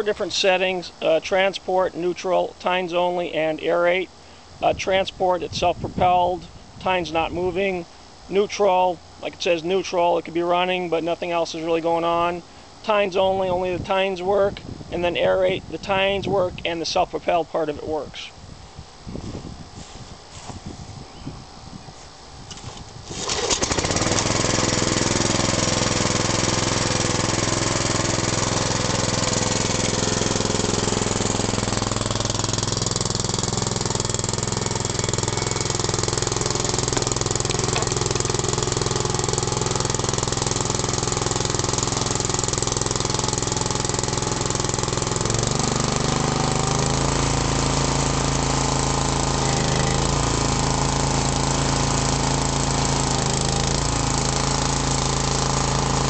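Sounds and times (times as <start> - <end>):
small gasoline engine running: 22.5 - 56.0.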